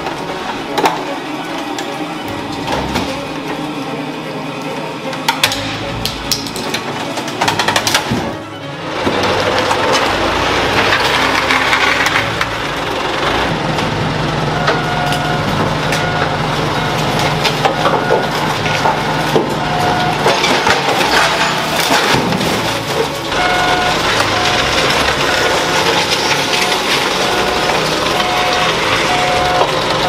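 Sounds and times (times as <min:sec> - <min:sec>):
steady machine hum: 0:00.0 - 0:08.8
sheet metal crumpling: 0:17.0 - 0:30.0
short electronic beeps: 0:27.2 - 0:29.8.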